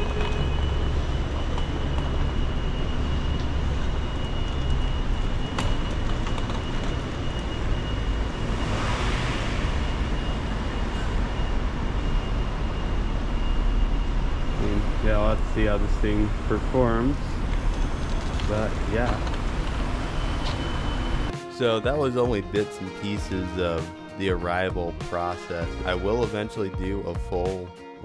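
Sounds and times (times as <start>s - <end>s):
vehicle rumble: 0.0s - 21.3s
high whine: 0.0s - 27.7s
rushing sound: 7.8s - 13.5s.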